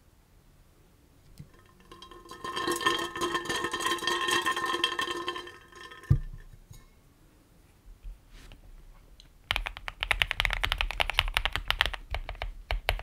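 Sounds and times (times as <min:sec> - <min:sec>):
contents clinking in metal tumbler: 0:01.5 - 0:06.1.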